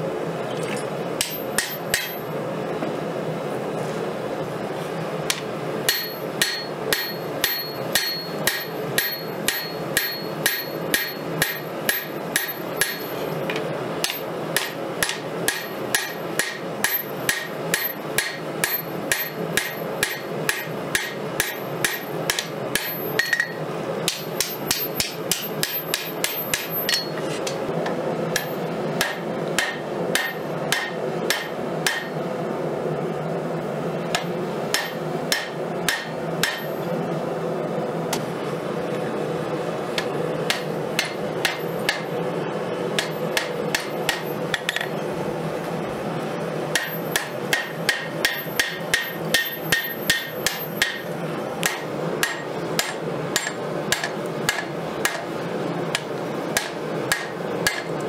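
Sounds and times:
hammer striking blade on anvil: 1.2 - 2.2, 5.3 - 13.2, 14.0 - 27.6, 28.4 - 32.2, 34.1 - 36.7, 40.0 - 42.1, 43.0 - 44.9, 46.7 - 55.2, 56.0 - 57.9
anvil ringing: 5.9 - 13.1, 22.8 - 27.2.

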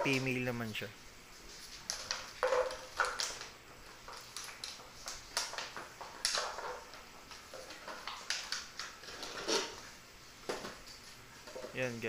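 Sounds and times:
plastic bottle and leash rattling: 1.8 - 9.8.

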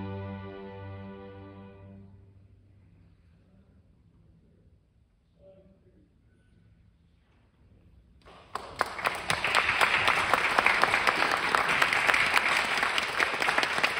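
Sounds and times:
audience applause: 8.3 - 13.9.

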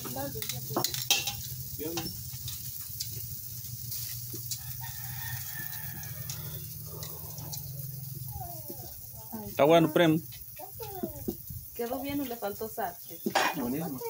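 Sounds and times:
meat sizzling on a grill: 0.0 - 14.0
rooster crowing: 4.4 - 9.3.

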